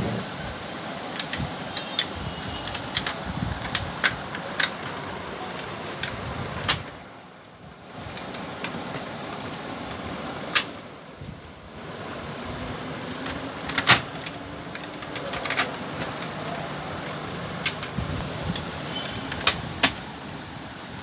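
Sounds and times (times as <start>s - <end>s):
steady background hiss: 0.0s - 21.0s
plastic parts clicking and knocking: 1.1s - 7.0s, 13.1s - 20.1s.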